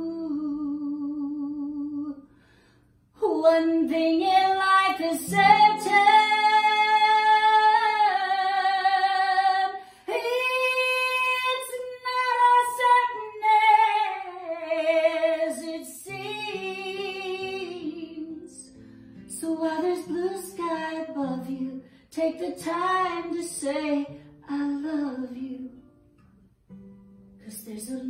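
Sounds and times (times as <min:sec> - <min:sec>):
woman singing a slow ballad: 0:00.0 - 0:02.3, 0:03.2 - 0:26.0, 0:27.4 - 0:28.0
strummed acoustic guitar: 0:04.3 - 0:09.5, 0:12.6 - 0:28.0.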